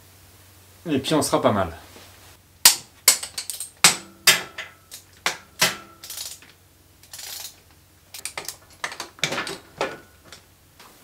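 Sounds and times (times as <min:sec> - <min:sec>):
wrench clicking on bolts: 0:02.7 - 0:09.4.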